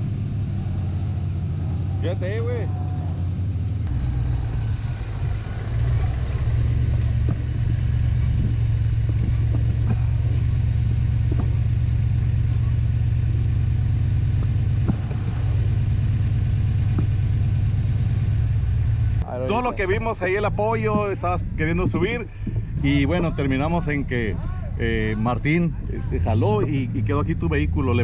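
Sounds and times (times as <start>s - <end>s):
buggy engine running at low revs: 0.0s - 28.0s
sharp knocks: 8.4s - 12.0s.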